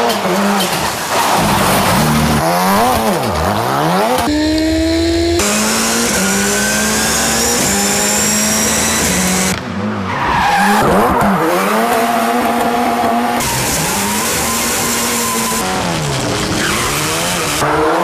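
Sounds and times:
rally car engine revving: 0.0s - 18.0s
tyre squeal: 12.9s - 17.5s.

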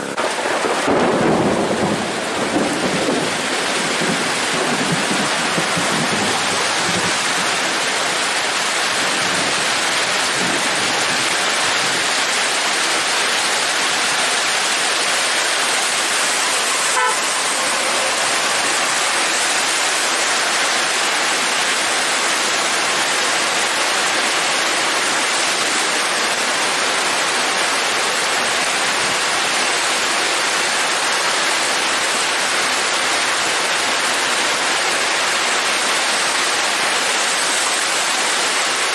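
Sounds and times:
heavy rain drumming on road: 0.0s - 38.9s
vehicle horn toot: 16.4s - 18.2s.

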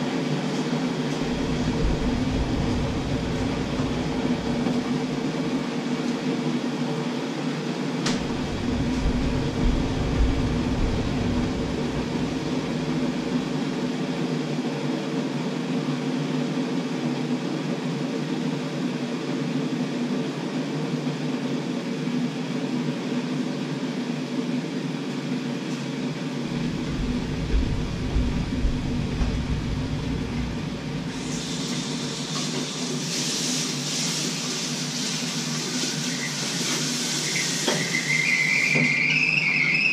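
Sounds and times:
appliance humming: 0.0s - 6.6s, 7.6s - 14.8s, 26.1s - 33.6s
tap water running into sink: 8.0s - 13.6s, 26.5s - 38.1s.

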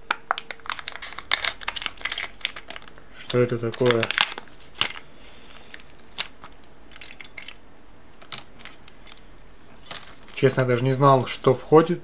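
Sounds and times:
plastic lid crinkling: 0.0s - 7.6s, 8.2s - 10.7s
plastic toy parts clicking: 6.9s - 7.6s.

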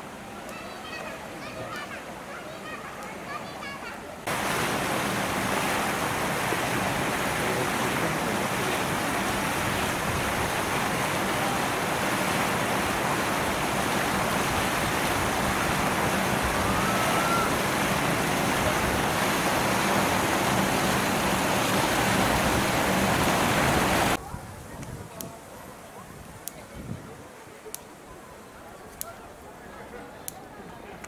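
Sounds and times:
steady rushing noise: 4.2s - 24.2s.

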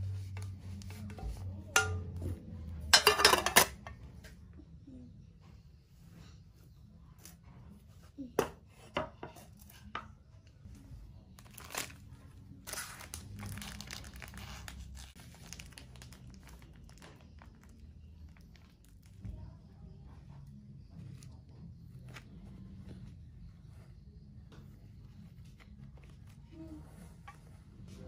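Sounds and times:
plastic wrapping crinkling and tearing: 11.4s - 19.2s.

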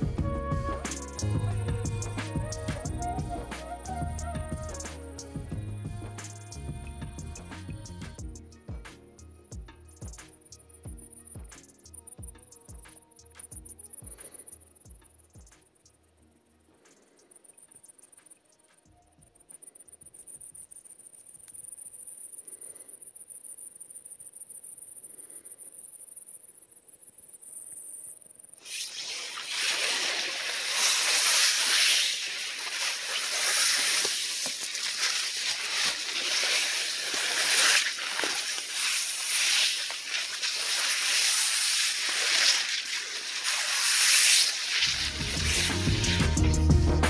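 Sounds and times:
insect chirring: 8.2s - 46.5s
uneven rustling hiss: 28.6s - 46.7s.

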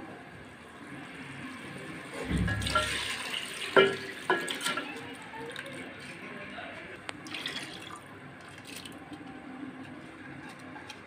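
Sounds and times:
rice pouring into pot of water: 1.1s - 5.1s.

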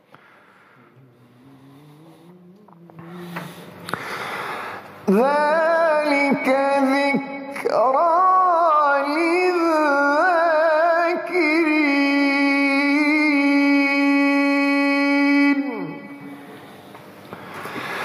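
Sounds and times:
man reciting melodically: 5.0s - 16.3s.

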